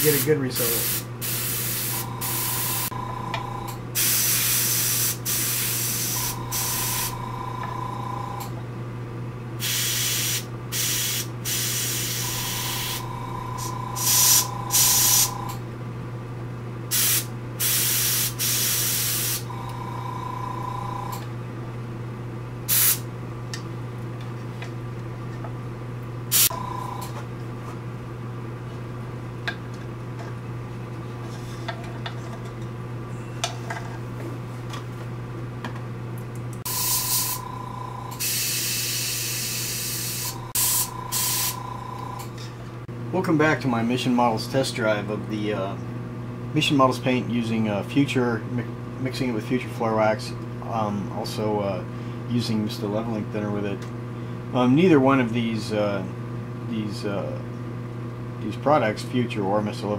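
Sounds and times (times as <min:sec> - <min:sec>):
airbrush hissing bursts: 0:00.0 - 0:02.9, 0:04.0 - 0:07.1, 0:09.6 - 0:15.4, 0:16.9 - 0:19.5, 0:22.7 - 0:23.0, 0:26.3 - 0:26.5, 0:36.7 - 0:37.4, 0:38.2 - 0:41.6
steady low hum: 0:00.0 - 0:59.9.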